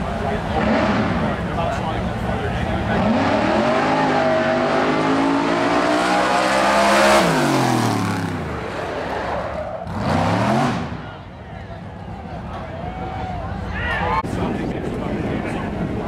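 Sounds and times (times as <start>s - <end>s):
race car engine accelerating: 0.3s - 1.6s, 2.2s - 11.2s.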